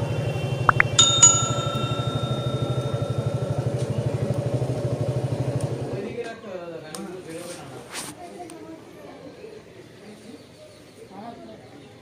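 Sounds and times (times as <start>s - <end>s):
bell ringing: 0.7s - 5.0s
motorcycle engine idling: 1.0s - 6.0s.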